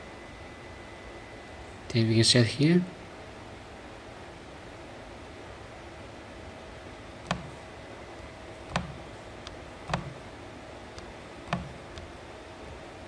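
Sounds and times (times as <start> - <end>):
faint steady hum: 0.0 - 13.0
fingertip taps on touch-screen: 7.2 - 7.6, 8.7 - 10.2, 11.0 - 12.1.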